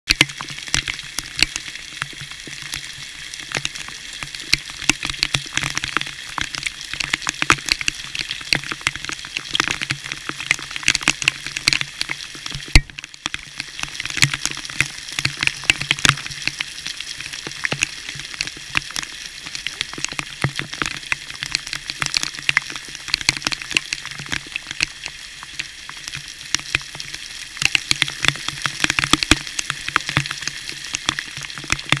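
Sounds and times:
falling water hiss: 0.2s - 32.0s
water drops striking camera: 3.5s - 13.4s.

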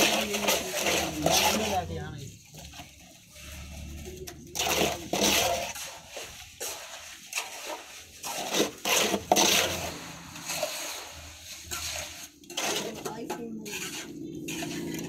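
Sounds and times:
plastic cup scraping wet slurry: 0.0s - 15.0s
slurry splashing: 0.0s - 15.0s.

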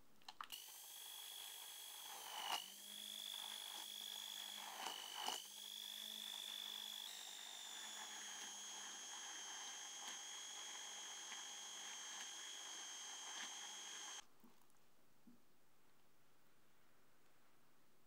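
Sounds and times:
immersion blender whining: 0.5s - 14.2s.

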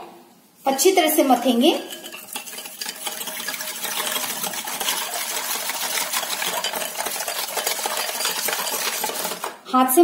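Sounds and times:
hand churner clicking and splashing: 1.9s - 9.6s.

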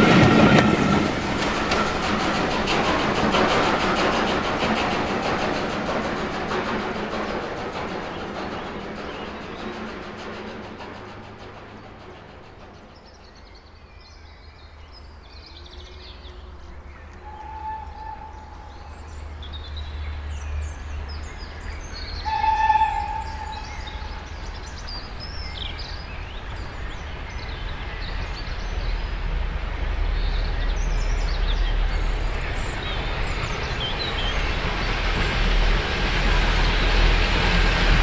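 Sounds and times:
steam locomotive rumble: 0.0s - 38.0s
small birds singing: 11.5s - 35.3s
steam whistle blasts: 17.2s - 18.6s, 22.2s - 24.2s.

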